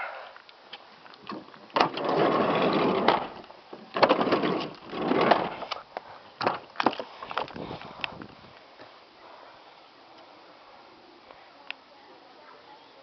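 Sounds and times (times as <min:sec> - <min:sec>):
car door rattling: 0:01.3 - 0:05.6, 0:06.4 - 0:07.0.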